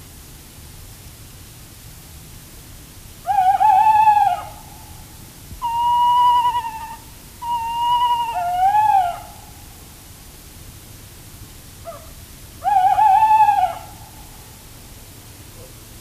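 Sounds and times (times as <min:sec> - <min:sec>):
owl calling: 0:03.2 - 0:05.0, 0:05.6 - 0:09.6, 0:11.8 - 0:14.6.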